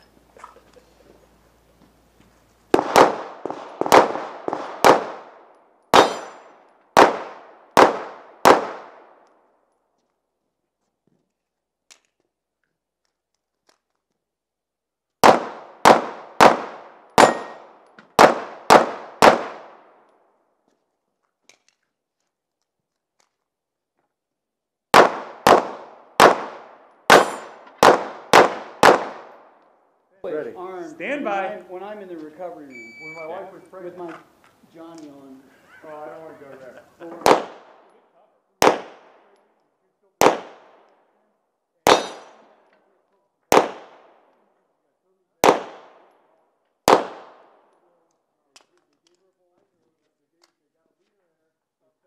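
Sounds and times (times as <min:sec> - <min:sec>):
pistol shots: 0:02.7 - 0:09.3, 0:15.2 - 0:20.0, 0:24.9 - 0:29.6, 0:37.2 - 0:37.9, 0:38.6 - 0:39.4, 0:40.2 - 0:41.0, 0:41.8 - 0:42.6, 0:43.5 - 0:44.3, 0:45.4 - 0:46.2, 0:46.8 - 0:47.8.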